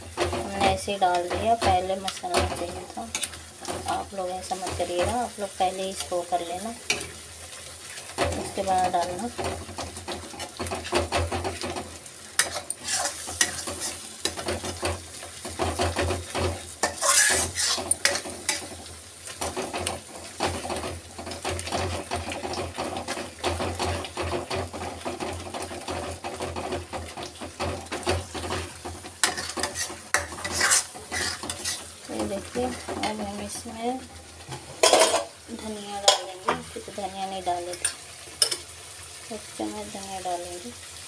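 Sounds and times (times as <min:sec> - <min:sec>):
paste sizzling in oil: 0:00.0 - 0:41.0
metal spoon scraping pan: 0:12.4 - 0:18.8, 0:19.4 - 0:36.7.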